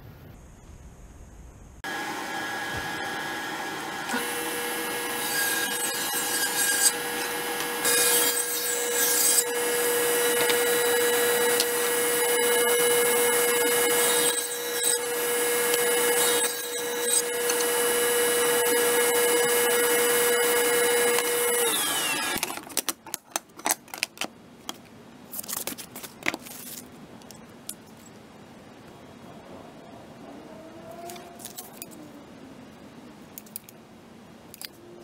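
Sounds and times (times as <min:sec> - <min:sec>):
table saw ripping wood: 0:01.9 - 0:22.9.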